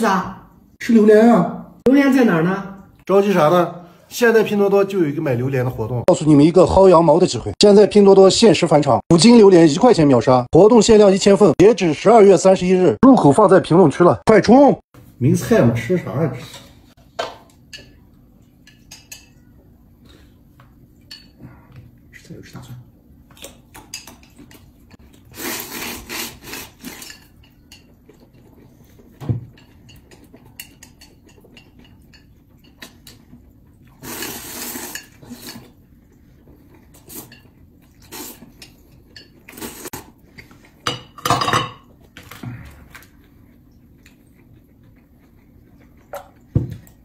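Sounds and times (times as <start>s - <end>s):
man slurping noodles: 25.3s - 26.9s.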